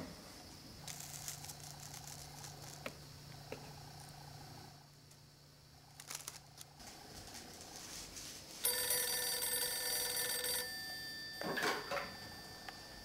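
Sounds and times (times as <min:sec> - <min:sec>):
telephone ringing: 0:08.6 - 0:13.0.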